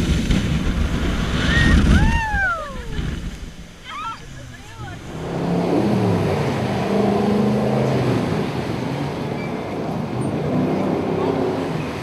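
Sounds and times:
jet boat engine running hard: 3.6s - 12.0s.

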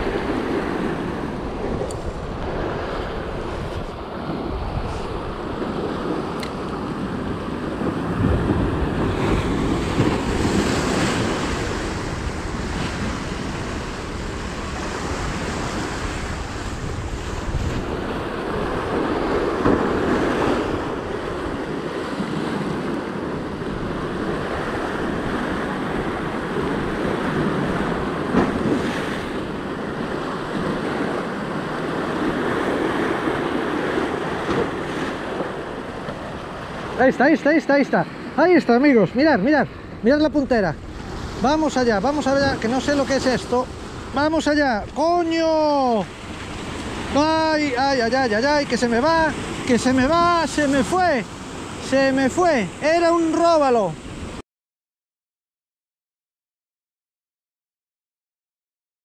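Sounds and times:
wind buffeting microphone: 0.0s - 37.0s
sea waves breaking on rocks: 0.0s - 54.4s.

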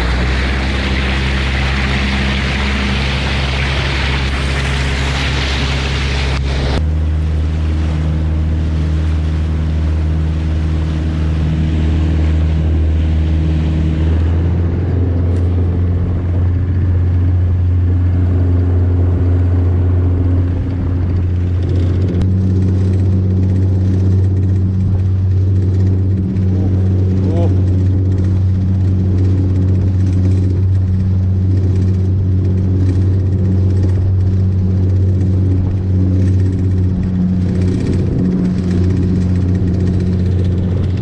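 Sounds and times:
boat engine droning: 0.0s - 41.0s
water rushing past hull: 0.0s - 41.0s.

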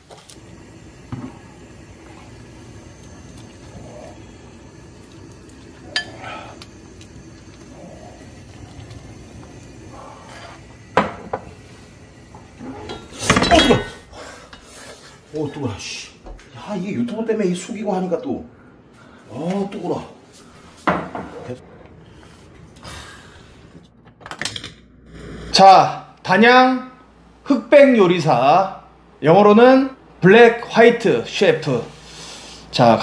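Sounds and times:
steady low background noise: 24.8s - 33.0s.

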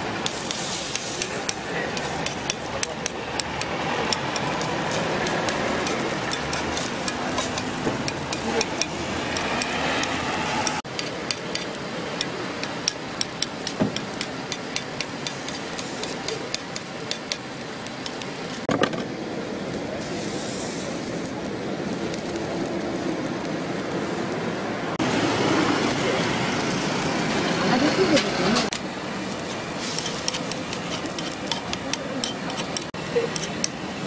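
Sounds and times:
batter sizzling on hot griddle: 0.0s - 34.0s
street noise: 0.0s - 34.0s.

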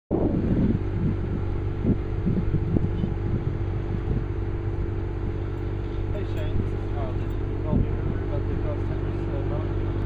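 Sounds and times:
engine idling drone: 0.1s - 10.0s.

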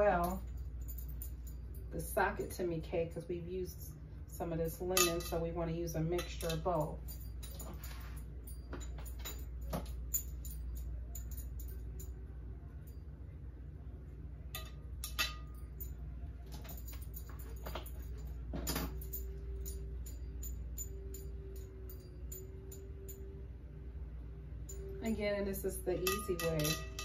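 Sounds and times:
low steady hum: 0.0s - 27.0s
metal utensil clinking on glass bowl: 5.0s - 5.4s, 14.6s - 15.7s, 25.9s - 27.0s.

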